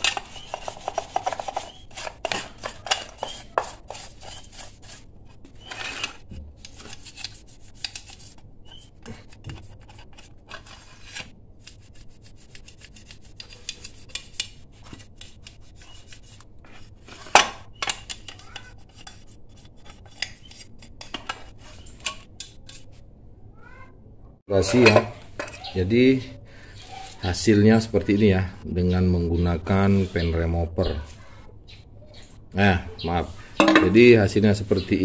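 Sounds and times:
brush scrubbing metal: 0:00.0 - 0:23.0
sharp metal clank: 0:33.6 - 0:34.1.

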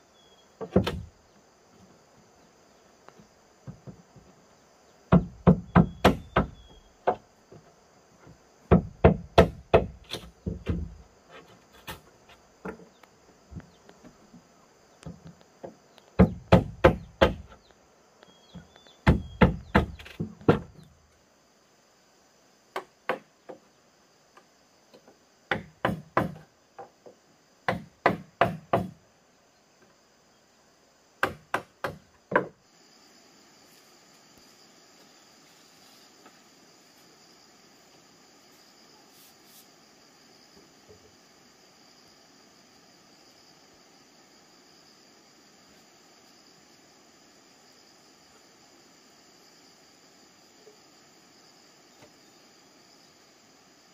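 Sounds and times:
insects buzzing: 0:00.0 - 0:53.9
sharp blows on bamboo: 0:05.1 - 0:07.2, 0:08.7 - 0:11.0, 0:16.2 - 0:17.6, 0:19.0 - 0:20.7, 0:25.5 - 0:26.5, 0:27.6 - 0:29.0, 0:31.2 - 0:32.5.

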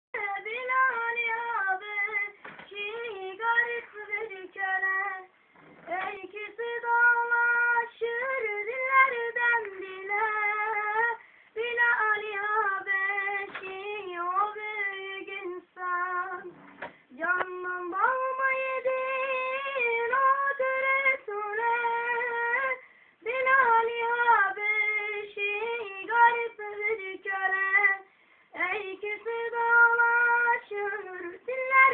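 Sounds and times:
short breaths: 0:11.2 - 0:11.6, 0:22.8 - 0:23.2, 0:28.0 - 0:28.6.

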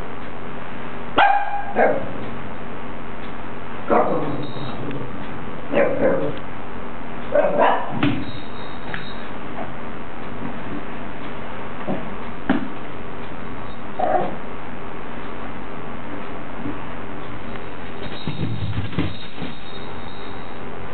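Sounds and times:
small dog barking: 0:01.2 - 0:02.2, 0:03.9 - 0:04.6, 0:05.7 - 0:06.4, 0:07.3 - 0:08.0.

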